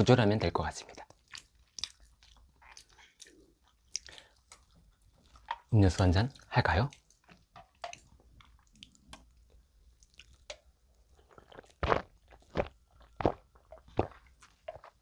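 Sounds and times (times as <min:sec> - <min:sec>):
person gulping: 0:10.0 - 0:15.0.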